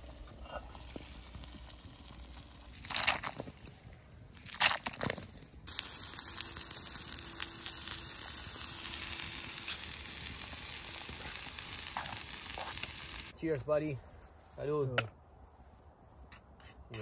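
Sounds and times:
food sizzling in a frying pan: 5.7s - 13.3s.

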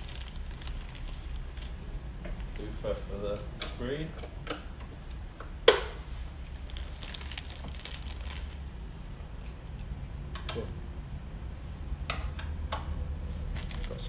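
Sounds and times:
plastic bag crinkling: 0.0s - 1.9s, 6.5s - 8.7s, 13.5s - 14.0s
steady low hum: 0.0s - 14.0s.

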